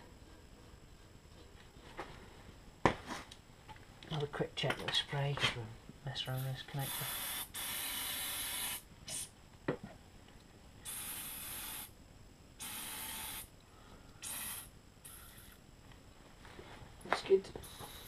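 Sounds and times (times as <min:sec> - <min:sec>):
aerosol spray hissing: 0:06.4 - 0:09.3, 0:10.9 - 0:11.9, 0:14.2 - 0:15.6, 0:17.6 - 0:18.0.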